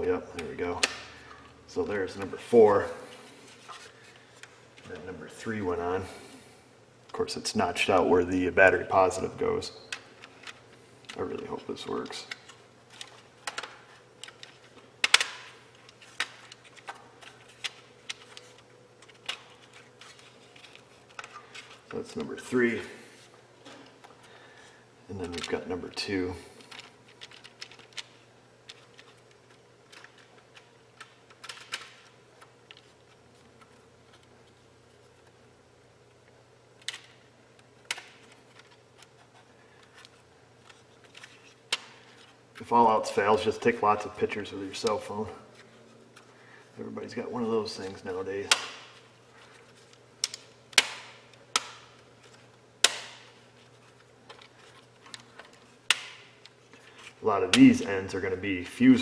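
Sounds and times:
plastic parts clicking together: 26.7 - 32.9, 49.4 - 53.2.

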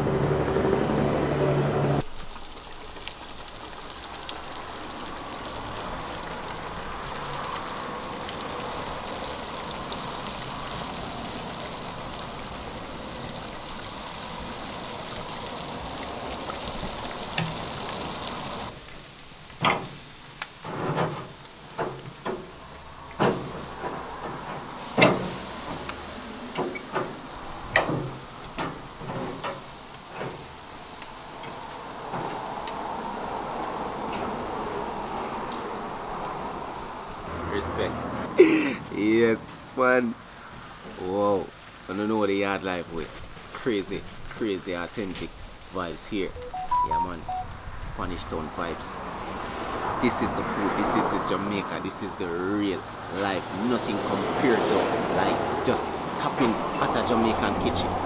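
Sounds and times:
chicken sizzling in hot oil: 2.0 - 34.0.

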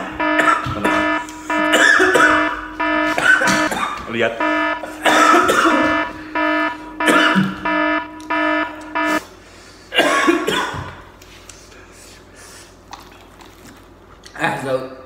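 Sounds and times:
short electronic beeps: 0.0 - 3.7, 4.3 - 9.2
man coughing: 0.0 - 6.4, 7.0 - 7.7, 9.9 - 11.0.

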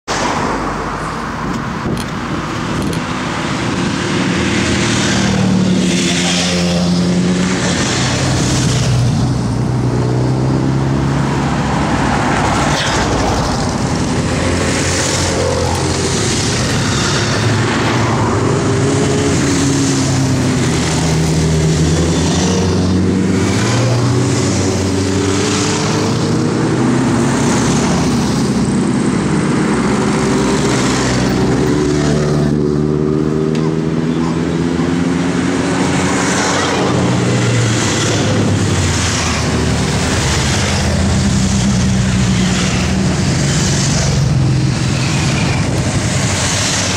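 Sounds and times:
motorcycles riding past: 3.1 - 46.9.

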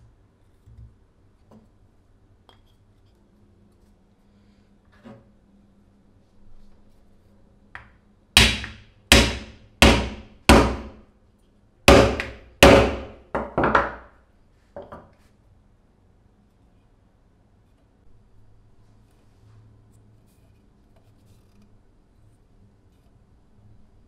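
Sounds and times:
hammer striking wooden block: 7.8 - 11.0, 11.9 - 14.1.

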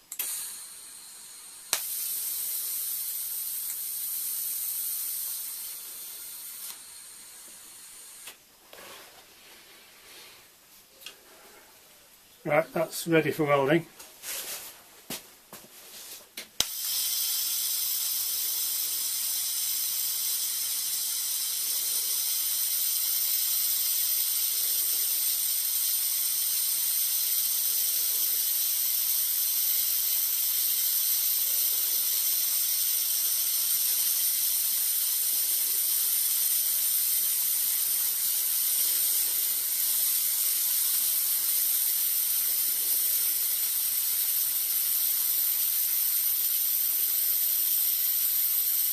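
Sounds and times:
welding arc hissing: 0.0 - 10.4, 16.1 - 48.9
welding arc striking click: 0.1 - 0.6, 1.7 - 2.2, 16.4 - 18.2.

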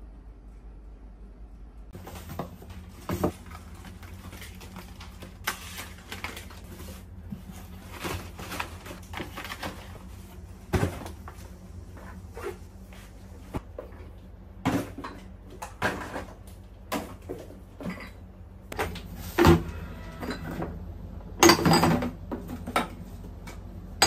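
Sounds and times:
cardboard boxes rustling and scraping: 2.0 - 13.6.

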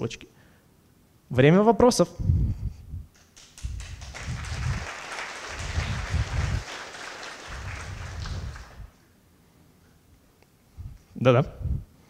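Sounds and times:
audience applauding: 3.2 - 9.0.

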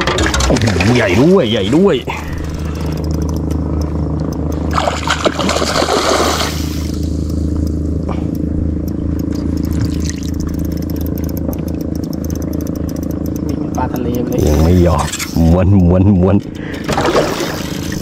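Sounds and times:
low motor hum: 0.0 - 18.0
small clicks: 2.2 - 5.3, 6.8 - 15.4
water splash: 4.7 - 7.0, 16.9 - 18.0.

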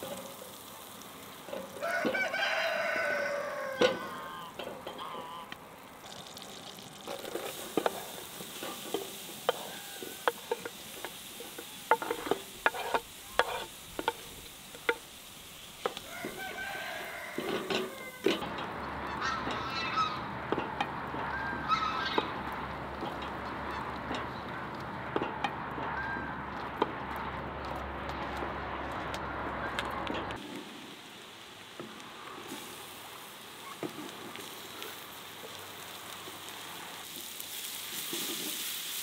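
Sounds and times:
poultry calls: 2.4 - 5.6, 18.8 - 20.4, 21.1 - 24.7
cooking utensils clicking and knocking: 7.0 - 16.6, 17.3 - 19.7, 20.4 - 28.4.

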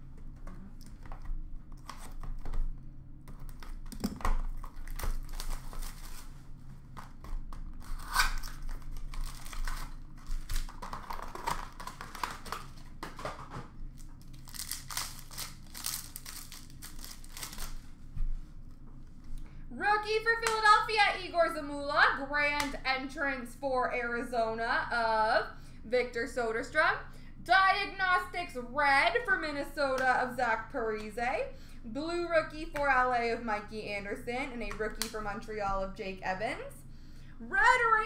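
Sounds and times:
card pack wrappers tearing and crinkling: 3.4 - 6.4, 7.0 - 17.9.

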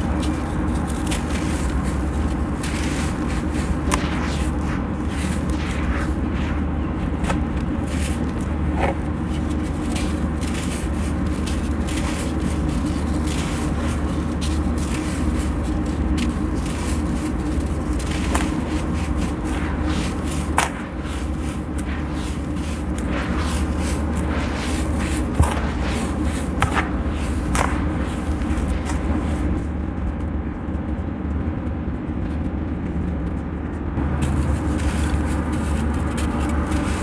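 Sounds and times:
gritty sand pouring hiss: 0.0 - 6.7, 9.4 - 29.6
clumps crackling: 0.0 - 29.6
low rumble: 0.0 - 37.0.

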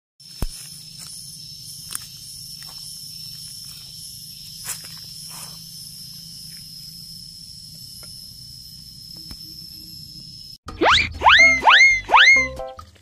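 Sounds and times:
high-pitched insect call: 0.2 - 12.5
rising whistle sound effect: 10.7 - 12.8.

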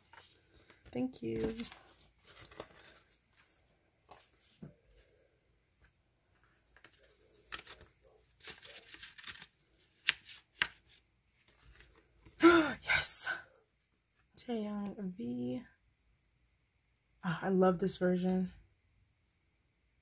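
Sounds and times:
paper rustling: 0.0 - 12.4.

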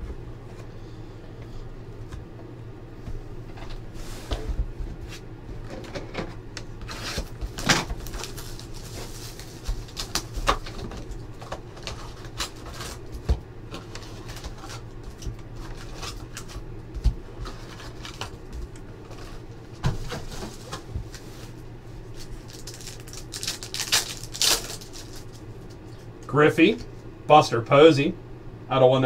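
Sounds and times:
foil packs and cards rustling: 6.8 - 26.1.

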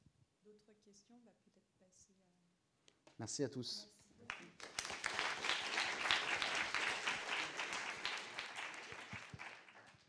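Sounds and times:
audience applauding: 4.3 - 10.0.

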